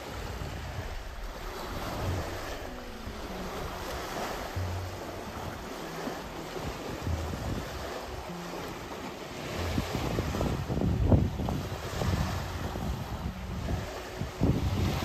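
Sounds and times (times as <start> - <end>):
faint background music: 0.0 - 15.0
lake waves: 0.0 - 15.0
wind buffeting microphone: 0.0 - 15.0.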